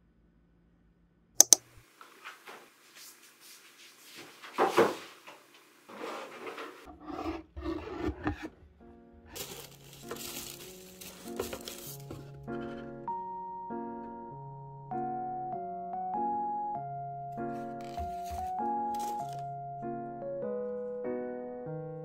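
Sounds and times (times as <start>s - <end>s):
sharp clicks: 1.4s - 1.8s
objects being set down: 4.5s - 12.9s, 17.6s - 19.4s
soft piano music: 8.7s - 22.0s
tissue paper crinkling: 9.4s - 12.4s, 17.6s - 19.4s.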